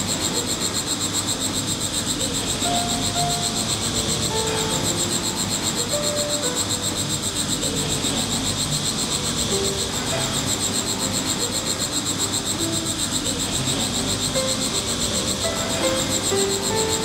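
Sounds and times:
insects chirping in a high trill: 0.0 - 17.0
music of held notes: 0.0 - 17.0.

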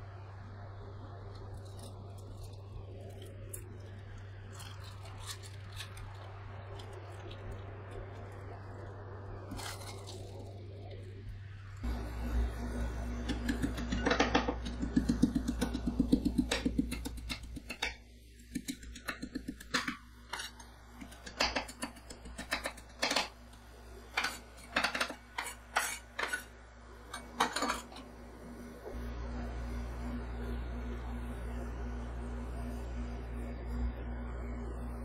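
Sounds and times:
low steady hum: 0.0 - 35.0
cookies crunching: 1.4 - 8.6, 9.4 - 11.1.

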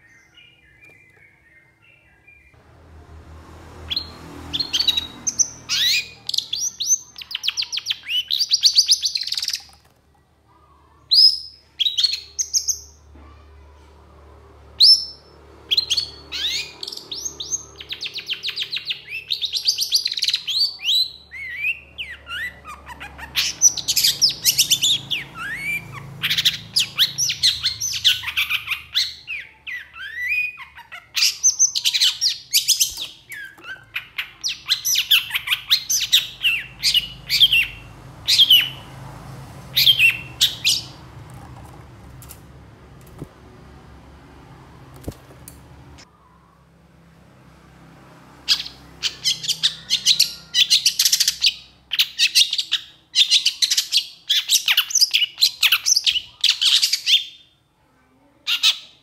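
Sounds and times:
bird singing chattering song: 0.0 - 2.6, 3.9 - 9.8, 10.7 - 13.1, 14.8 - 39.1, 39.7 - 41.2, 48.5 - 57.4.

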